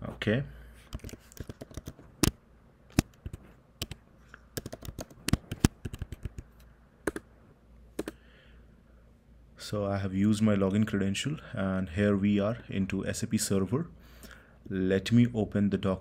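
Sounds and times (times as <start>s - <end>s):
keyboard key clicks: 4.6s - 6.4s, 7.1s - 7.3s, 8.0s - 8.2s.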